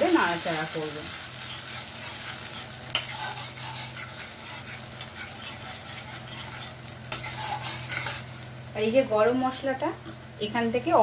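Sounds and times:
spatula stirring food in pan: 0:00.0 - 0:08.7
soft sizzle: 0:00.0 - 0:11.0.

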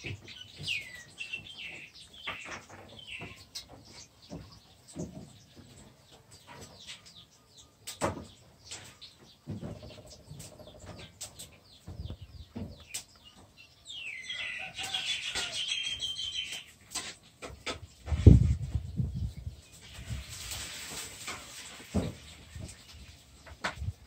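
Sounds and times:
high quick chirping calls: 0:10.2 - 0:16.8.

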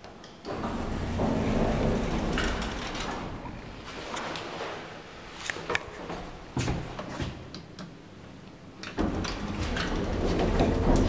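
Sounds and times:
elevator door motor humming: 0:00.5 - 0:04.2, 0:09.0 - 0:11.0
elevator doors sliding shut: 0:00.5 - 0:05.4, 0:08.9 - 0:11.0.

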